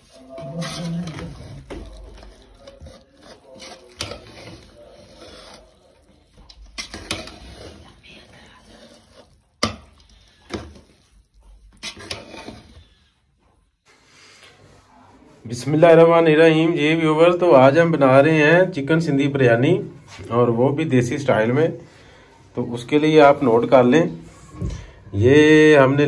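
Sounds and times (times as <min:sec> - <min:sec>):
utensils scraping cookware: 0:00.0 - 0:13.0.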